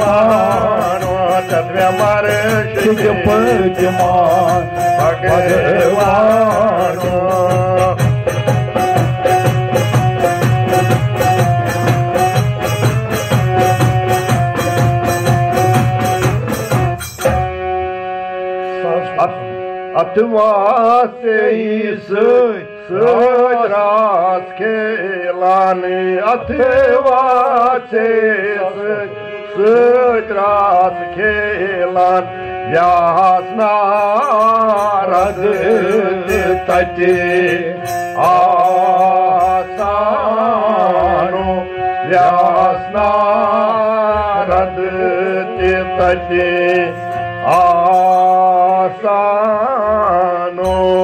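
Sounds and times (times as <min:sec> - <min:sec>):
hand drum beating: 0:00.0 - 0:17.6, 0:34.0 - 0:40.0, 0:46.0 - 0:48.8
steady drone: 0:00.0 - 0:19.6, 0:33.6 - 0:43.3
devotional song melody: 0:00.0 - 0:51.0.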